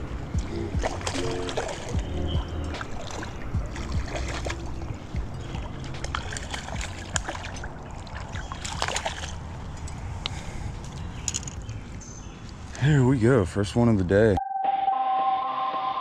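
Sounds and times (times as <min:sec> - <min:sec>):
fish splashing in water: 0:00.4 - 0:09.7.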